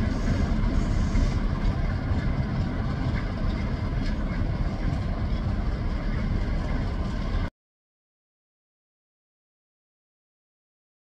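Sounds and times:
diesel locomotive rumble: 0.0s - 7.5s.

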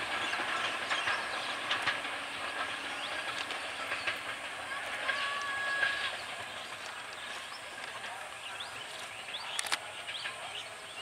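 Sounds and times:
birds chirping: 0.0s - 4.4s, 5.1s - 11.0s
faint distant voices: 2.4s - 11.0s
sharp clicks: 9.5s - 9.8s.

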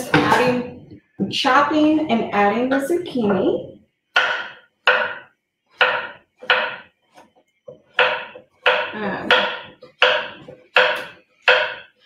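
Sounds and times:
knife chopping on wooden board: 4.2s - 12.0s.

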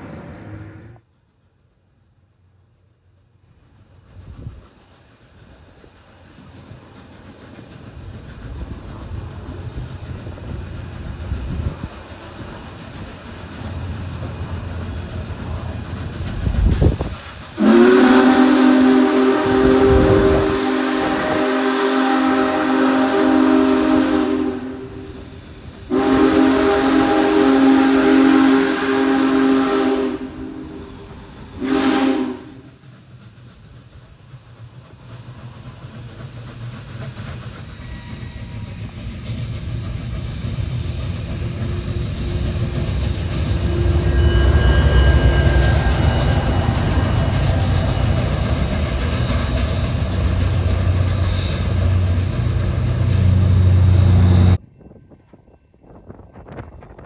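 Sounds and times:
train rumbling past: 0.0s - 57.0s
steam chime whistle: 17.6s - 31.0s, 37.6s - 48.8s, 50.7s - 52.0s.

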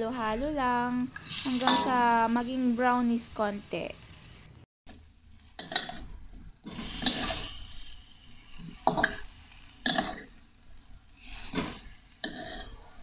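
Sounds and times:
spatula scraping a wok: 1.0s - 3.0s, 5.5s - 13.0s
chicken sauteing in oil: 6.6s - 13.0s.

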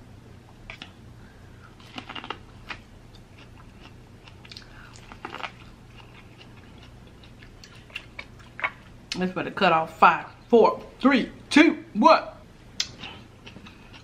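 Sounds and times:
crunching corn on the cob: 1.8s - 2.8s, 3.4s - 8.8s.

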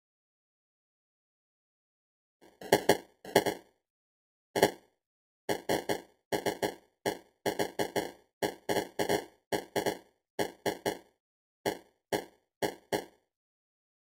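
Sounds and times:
popcorn popping: 5.5s - 11.0s.

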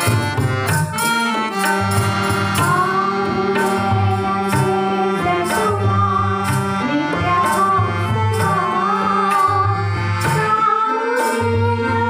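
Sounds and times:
tabla rhythm: 0.0s - 12.0s
women singing: 2.5s - 12.0s.

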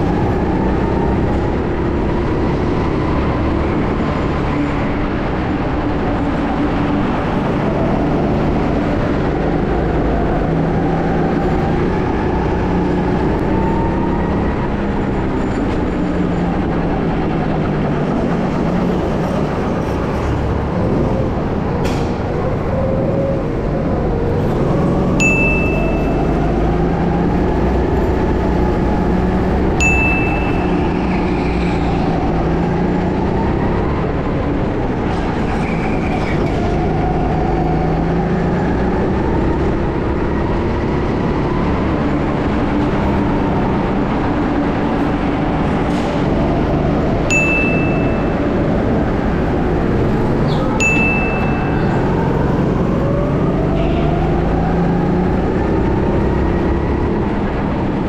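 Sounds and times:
sharp click with high ring: 25.2s - 26.2s.

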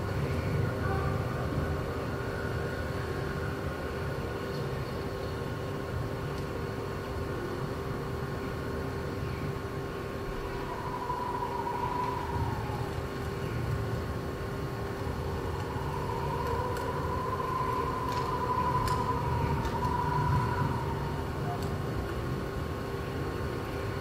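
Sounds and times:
constant hum: 0.0s - 24.0s
faint wavering tone: 9.9s - 22.4s
low rumble: 10.1s - 23.0s.

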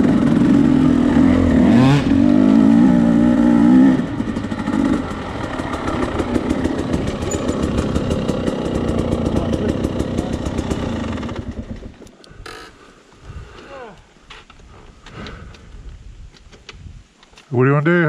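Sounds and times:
dirt bike engine idling: 0.0s - 13.4s
other dirt bikes idling: 0.0s - 13.4s.

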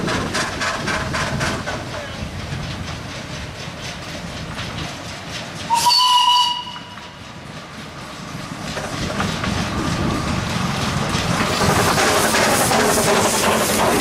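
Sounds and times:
steam locomotive running: 0.0s - 14.0s
steam whistle blast: 5.7s - 7.1s.

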